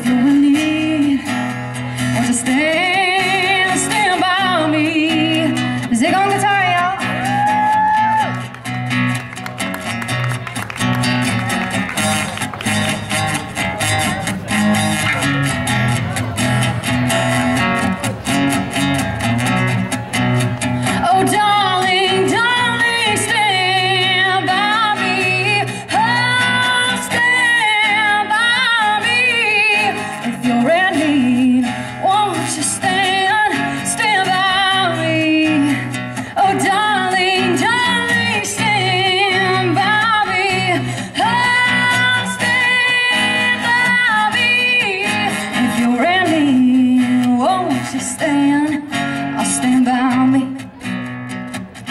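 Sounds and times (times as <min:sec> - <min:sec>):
woman singing with vibrato: 0:00.0 - 0:08.0, 0:20.8 - 0:50.7
acoustic guitar strumming: 0:00.0 - 0:51.9.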